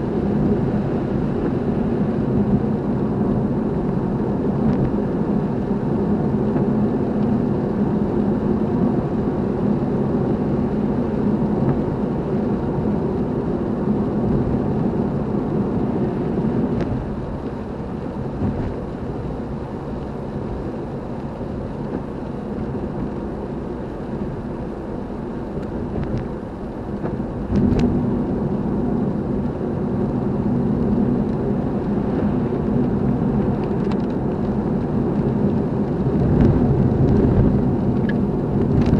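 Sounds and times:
car engine and road noise: 0.0s - 38.9s.

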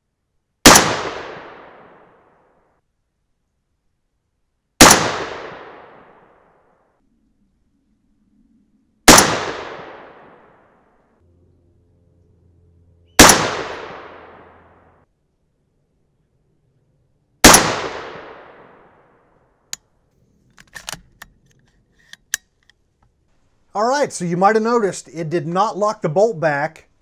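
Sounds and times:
rifle shots echoing: 0.6s - 2.3s, 4.8s - 6.4s, 9.1s - 10.7s, 13.2s - 14.9s, 17.4s - 19.2s.

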